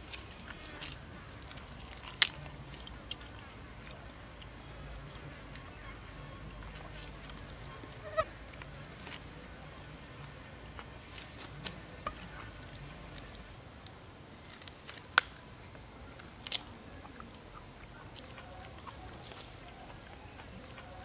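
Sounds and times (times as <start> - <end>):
raw meat tearing: 0.0 - 3.4, 14.6 - 21.0
sharp snap: 14.9 - 15.4.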